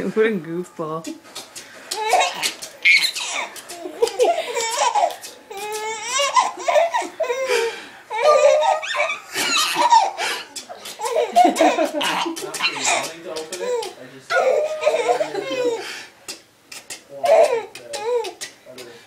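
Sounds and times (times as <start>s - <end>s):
infant laughing and giggling: 1.4s - 18.5s.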